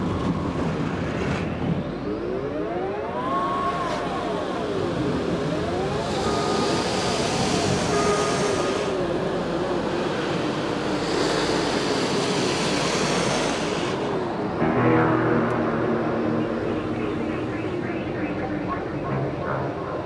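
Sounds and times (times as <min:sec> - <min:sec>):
dense wash of noise: 0:00.0 - 0:20.0
synthesizer tones sliding in pitch: 0:01.8 - 0:09.9, 0:14.1 - 0:20.0.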